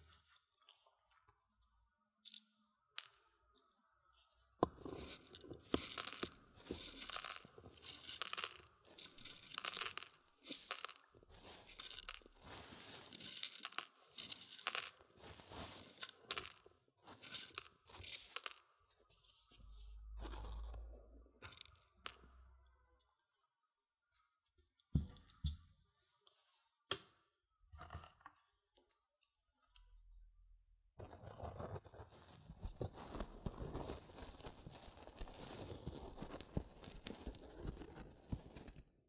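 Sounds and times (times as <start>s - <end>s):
beans rattling against microphone: 5.8s - 18.6s.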